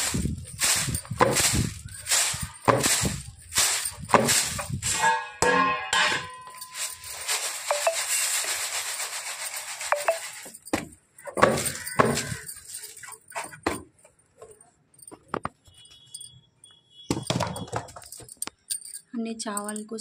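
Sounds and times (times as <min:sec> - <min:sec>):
rice rattling in bamboo tray: 0:00.0 - 0:05.0, 0:06.5 - 0:10.7, 0:11.3 - 0:13.5.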